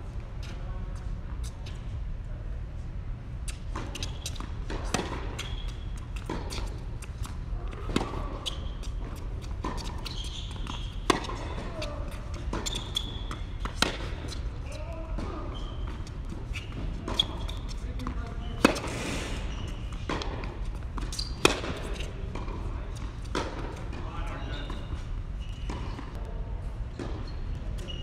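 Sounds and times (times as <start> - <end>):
low hum of hall: 0.0 - 28.0
racket hitting tennis ball: 3.5 - 5.5, 6.1 - 14.5, 15.1 - 19.0, 20.0 - 24.0
tennis ball bouncing: 3.5 - 14.5, 15.1 - 18.9, 19.9 - 24.0.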